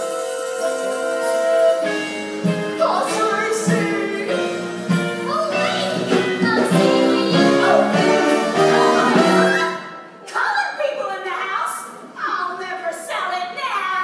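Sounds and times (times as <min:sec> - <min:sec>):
pit band playing: 0:00.0 - 0:10.2
voices singing show tune: 0:02.8 - 0:09.8.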